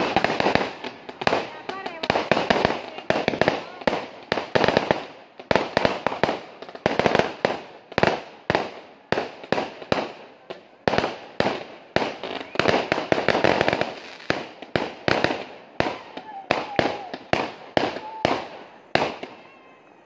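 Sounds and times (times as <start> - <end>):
aerial fireworks bangs: 0.0 - 10.2.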